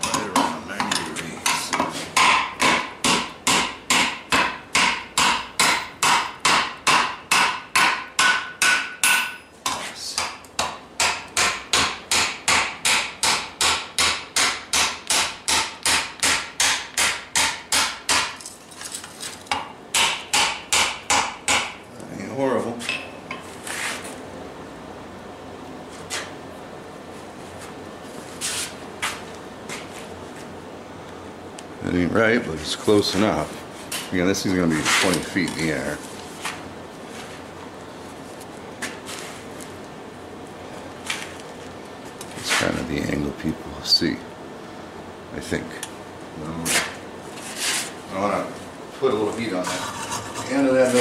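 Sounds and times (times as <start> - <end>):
hammer striking steel on anvil: 0.0 - 18.4, 19.5 - 21.8, 22.9 - 23.4.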